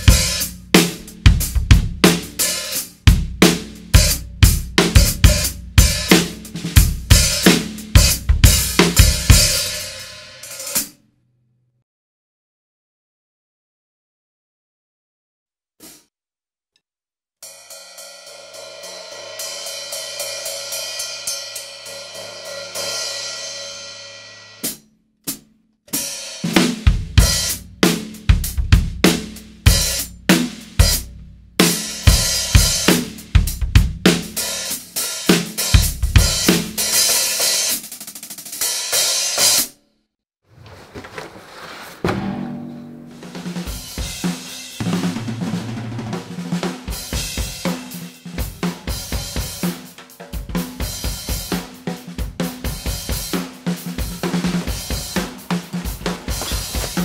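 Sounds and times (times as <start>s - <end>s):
drum kit groove: 0.0s - 11.0s, 15.8s - 16.1s, 24.6s - 39.8s, 42.0s - 57.0s.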